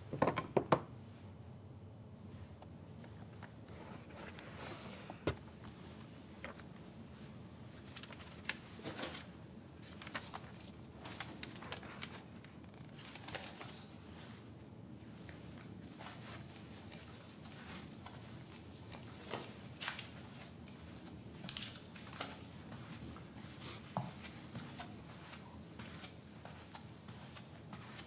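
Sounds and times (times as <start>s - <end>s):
papers rustling: 3.2s - 14.6s, 15.2s - 23.4s.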